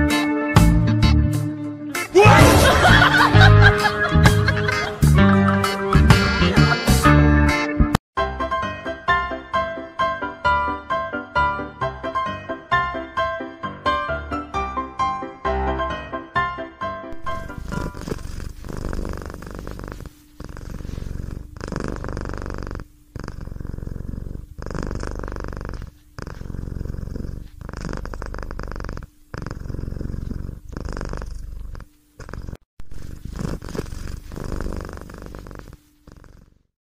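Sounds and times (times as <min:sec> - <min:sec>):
cat purring: 0:17.2 - 0:36.7.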